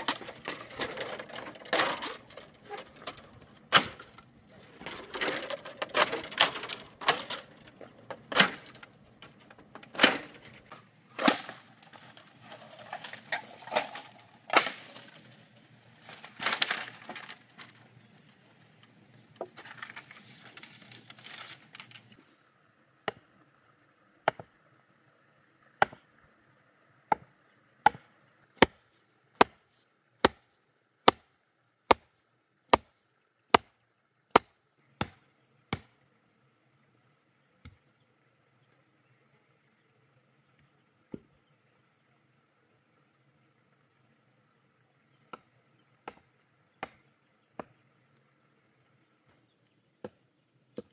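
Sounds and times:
bamboo poles clattering: 0:00.0 - 0:17.9, 0:18.8 - 0:22.2.

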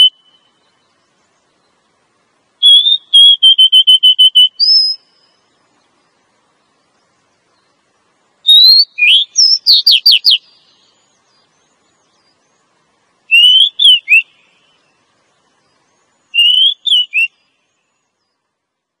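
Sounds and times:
bird whistling calls: 0:00.0 - 0:01.0, 0:02.6 - 0:05.4, 0:08.4 - 0:12.5, 0:13.3 - 0:15.0, 0:15.7 - 0:18.3.

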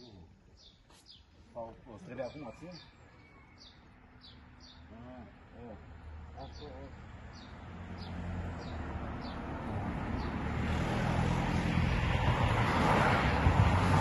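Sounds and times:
car passing: 0:04.0 - 0:14.0.

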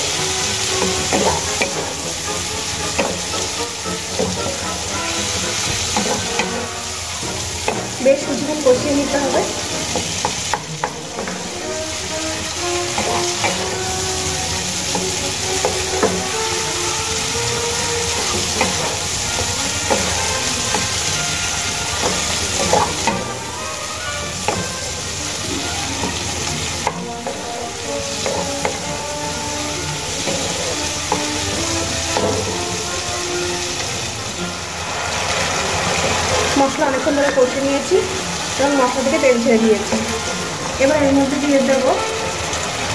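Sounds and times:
spatula scraping pan: 0:00.0 - 0:34.5
food sizzling in oil: 0:00.0 - 0:42.9.

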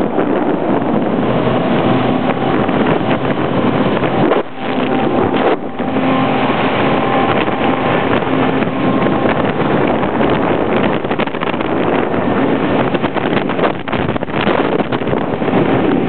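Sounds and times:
boat engines droning: 0:00.0 - 0:16.0
rushing water: 0:00.0 - 0:16.0
wind buffeting microphone: 0:00.0 - 0:16.0.

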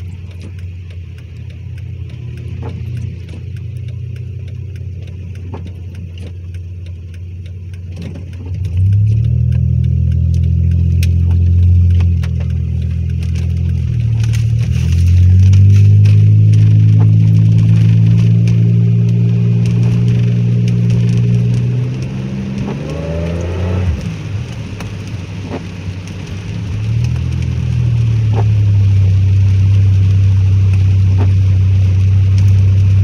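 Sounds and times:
faint ticks: 0:00.0 - 0:28.6
car engine idling and revving: 0:00.0 - 0:33.0.

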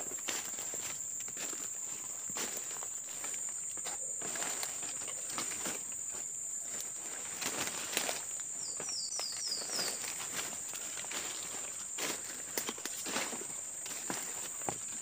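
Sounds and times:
footsteps through dry leaves: 0:04.2 - 0:06.0, 0:06.6 - 0:08.4, 0:09.2 - 0:15.0.

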